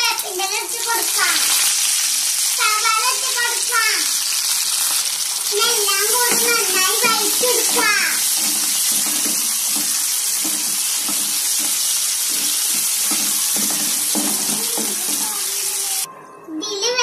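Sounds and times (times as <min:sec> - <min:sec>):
onions sizzling in hot oil: 0:00.0 - 0:16.1
spoon scraping pan: 0:06.1 - 0:16.1.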